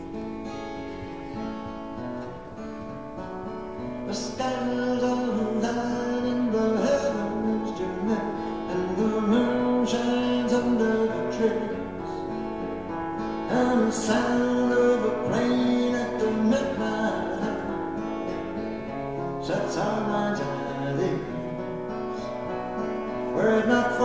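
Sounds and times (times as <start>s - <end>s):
acoustic guitar playing: 0.0s - 24.0s.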